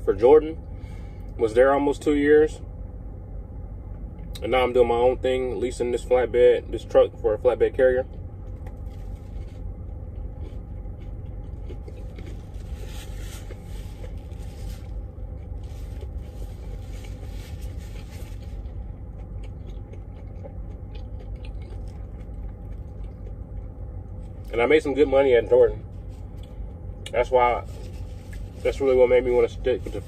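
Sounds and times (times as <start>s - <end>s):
low engine rumble: 0.0s - 30.0s
chewing: 8.4s - 24.6s
paper wrapper crinkling: 11.7s - 18.8s, 27.6s - 30.0s.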